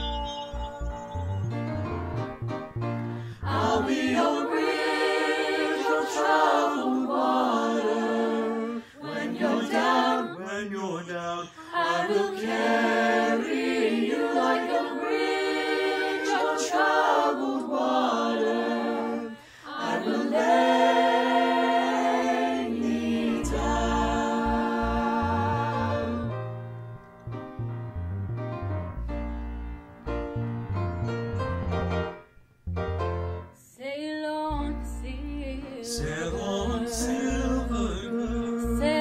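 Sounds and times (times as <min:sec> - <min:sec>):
choir singing a cappella: 0:03.2 - 0:26.4, 0:35.6 - 0:39.0.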